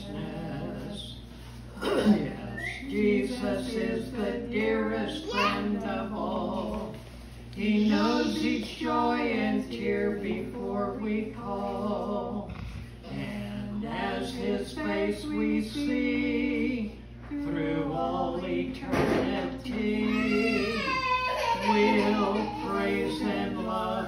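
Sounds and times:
man and woman singing a duet: 0:00.0 - 0:24.0.

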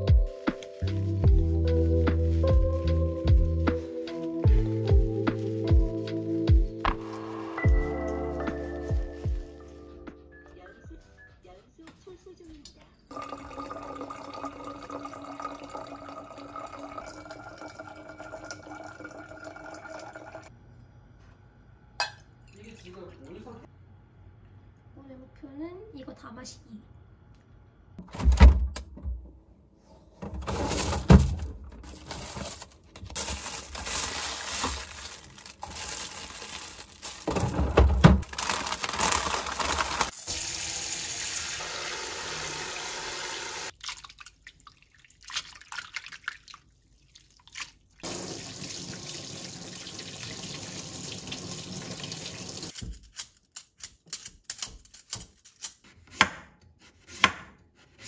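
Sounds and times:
knife cutting on cutting board: 0:55.9 - 0:58.0.

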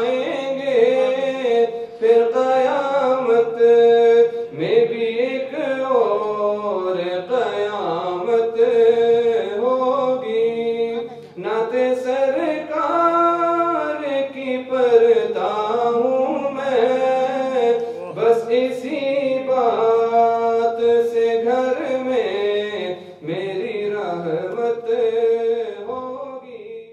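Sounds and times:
man singing unaccompanied: 0:00.0 - 0:26.9
man breathing: 0:01.7 - 0:02.0, 0:17.8 - 0:18.2.

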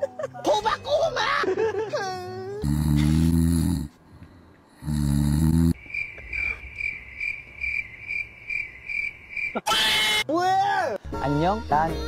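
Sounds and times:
cricket chirping: 0:05.6 - 0:09.7.

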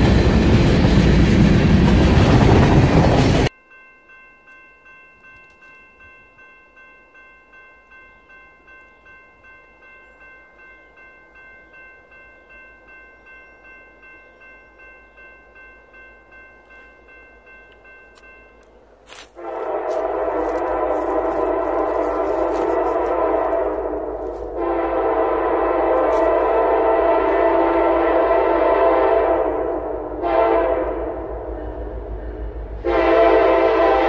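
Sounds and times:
crossing warning bell ringing: 0:03.2 - 0:34.0
locomotive horn: 0:19.1 - 0:34.0.

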